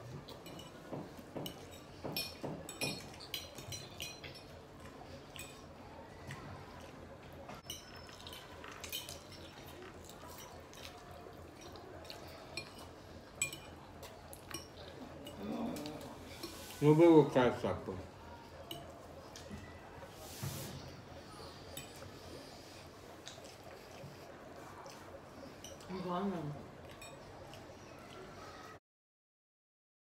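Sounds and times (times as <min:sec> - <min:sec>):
fork clinking on plate: 0:12.6 - 0:15.4.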